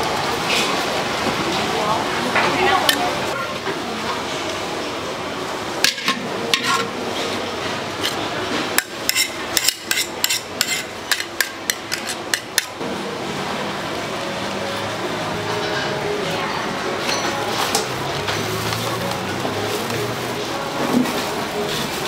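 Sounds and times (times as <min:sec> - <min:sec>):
steady background noise: 0:00.0 - 0:22.0
metal utensil clanking on pan: 0:05.8 - 0:06.9, 0:08.8 - 0:12.8.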